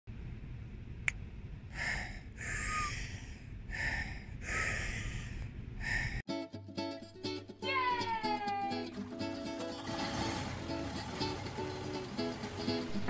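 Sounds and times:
person breathing forcefully: 1.7s - 6.2s
music: 6.3s - 13.0s.

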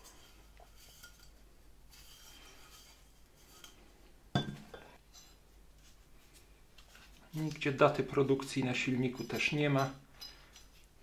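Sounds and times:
handling small metal parts: 6.8s - 11.0s.

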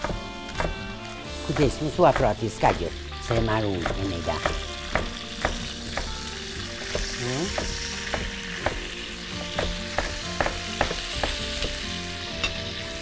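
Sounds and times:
knife chopping on a board: 0.0s - 8.9s, 9.5s - 11.8s
chicken sizzling in a pan: 1.0s - 13.0s
utensil knocking: 1.5s - 8.9s, 9.5s - 11.8s.

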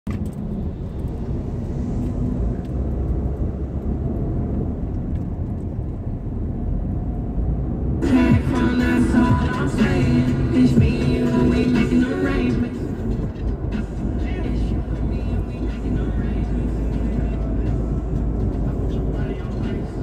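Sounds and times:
car road and engine rumble: 0.0s - 20.0s
music: 8.0s - 20.0s.

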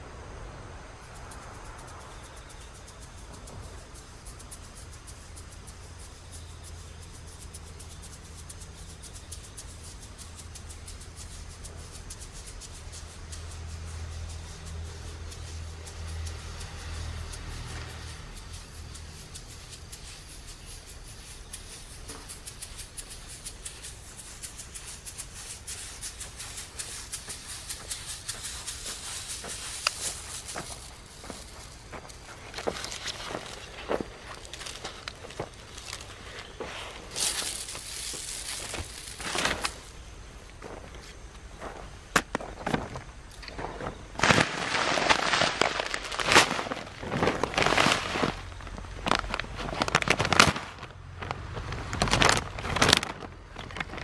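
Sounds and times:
footsteps crunching on soil: 16.4s - 54.0s
plastic sack crinkling: 22.2s - 40.0s, 43.5s - 54.0s.

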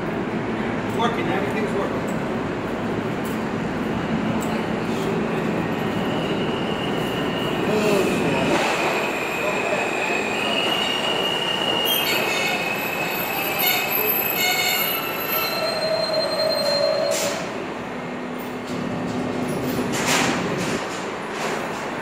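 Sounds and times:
train wheels rumbling on rail: 0.0s - 22.0s
high-pitched wheel squeals: 6.0s - 17.5s.

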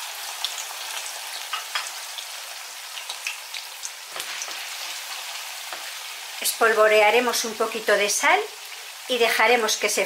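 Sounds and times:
potatoes sizzling in oil: 0.0s - 10.0s.

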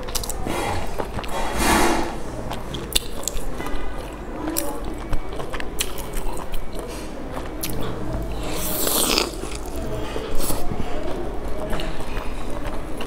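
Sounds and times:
wet mouth clicks: 0.0s - 1.4s
person chewing: 0.0s - 13.0s
loud bite: 5.8s - 10.6s.

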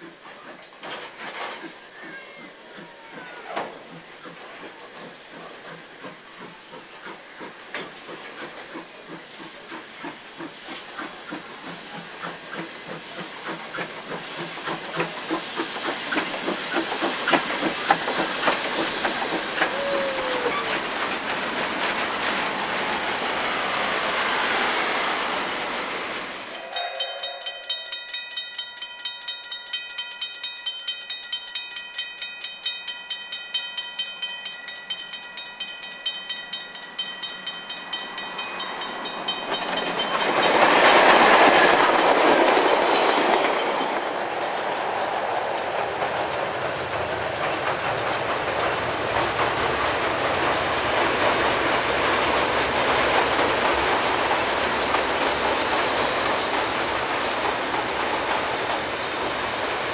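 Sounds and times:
steam locomotive passing: 0.0s - 59.9s
train carriages clickety-clack: 0.0s - 59.9s
level crossing bell ringing: 26.5s - 41.1s.

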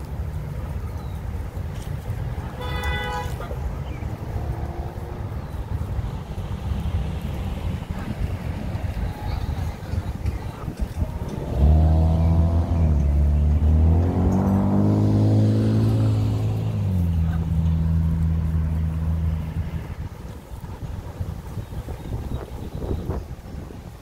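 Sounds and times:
wind buffeting microphone: 0.0s - 24.0s
vehicle engine running: 3.8s - 22.0s.

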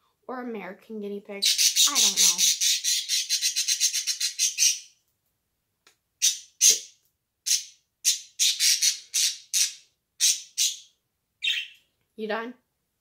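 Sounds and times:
small pet squawking: 1.4s - 4.8s.

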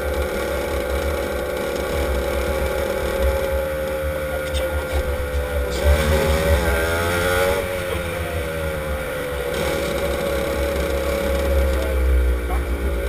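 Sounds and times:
kart engine running: 0.0s - 13.0s
heavy low rumble: 2.8s - 13.0s.

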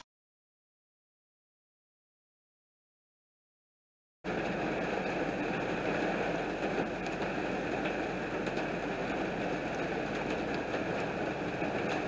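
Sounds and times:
heavy rain downpour: 4.3s - 12.0s
raindrops ticking: 4.3s - 12.0s.

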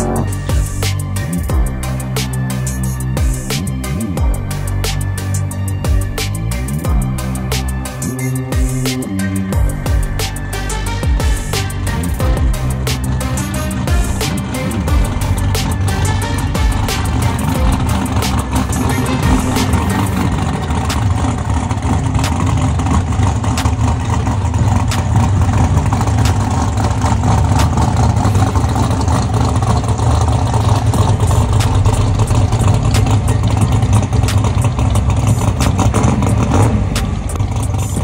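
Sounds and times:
car engine running loudly: 0.0s - 38.0s.

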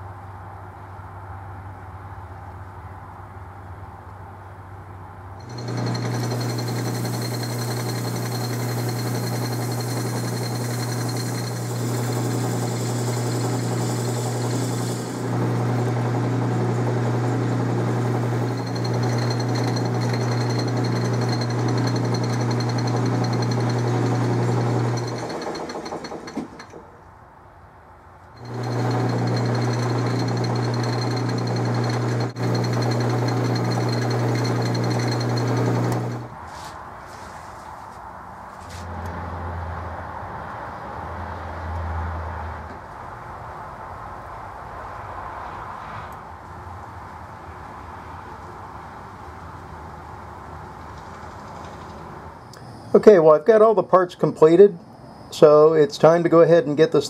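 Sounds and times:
abrasive pad polishing metal: 5.4s - 16.1s, 16.8s - 26.7s, 28.4s - 37.4s
metal lathe motor humming: 5.4s - 26.8s, 28.4s - 36.3s.

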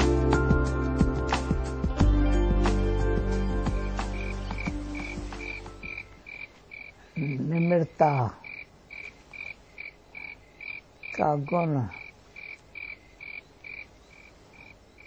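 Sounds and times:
soft background music: 0.0s - 6.3s.

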